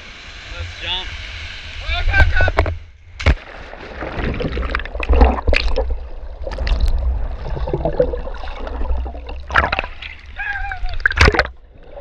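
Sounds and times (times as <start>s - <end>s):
muffled underwater churning water: 0.0s - 12.0s
bubbling and crackling: 2.6s - 12.0s.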